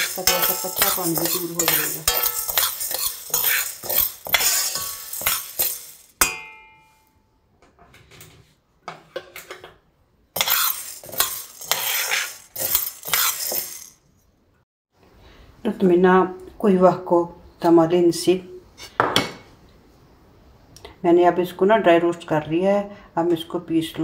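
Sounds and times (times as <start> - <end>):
beans rattling in a metal pan: 0.0 - 6.2, 10.4 - 14.0
sharp ringing clink: 0.0 - 7.2.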